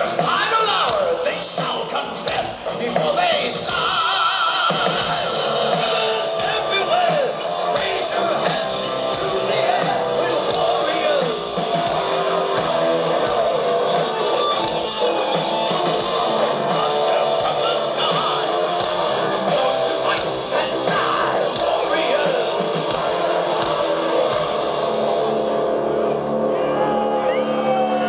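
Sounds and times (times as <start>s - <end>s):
person singing: 0.0s - 14.2s, 14.8s - 24.6s
electric guitar: 0.0s - 28.0s.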